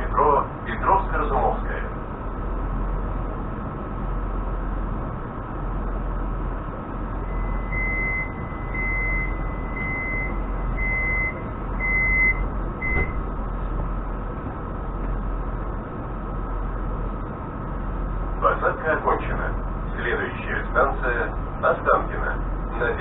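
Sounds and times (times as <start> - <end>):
electric train hum: 0.0 - 23.0
electronic warning beeps: 7.2 - 13.2.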